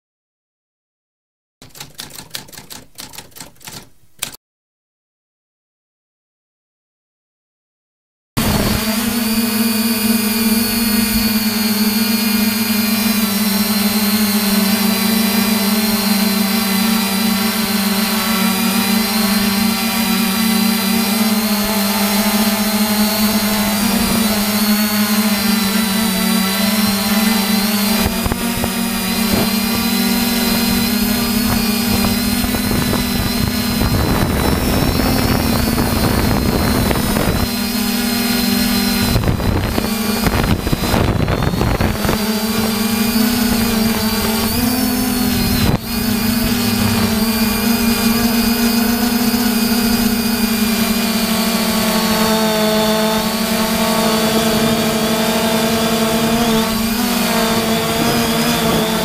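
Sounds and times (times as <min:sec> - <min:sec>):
drone propellers whining: 0:08.4 - 0:59.0
rough low rumbling: 0:39.0 - 0:49.1.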